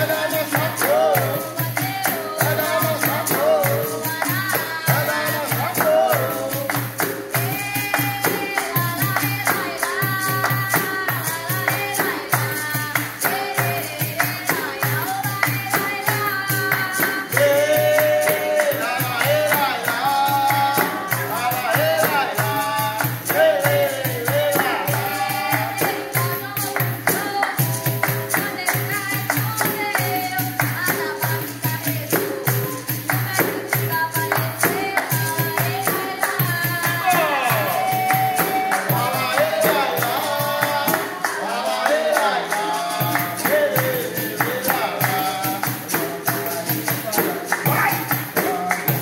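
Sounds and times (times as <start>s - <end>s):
hand clapping: 0.0s - 49.0s
jingling hand percussion: 0.0s - 49.0s
person singing: 0.0s - 49.0s.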